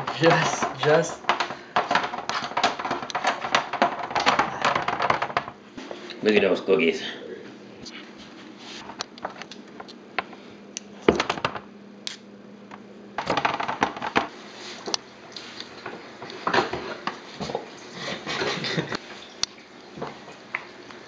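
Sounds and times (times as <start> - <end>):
objects being handled: 0.0 - 6.0.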